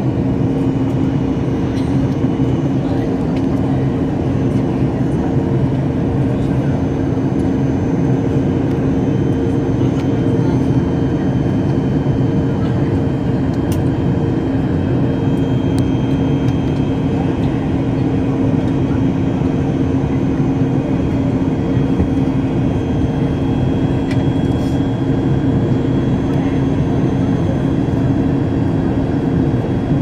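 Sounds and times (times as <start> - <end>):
airliner engine drone: 0.0 - 30.0
constant low hum: 0.0 - 30.0.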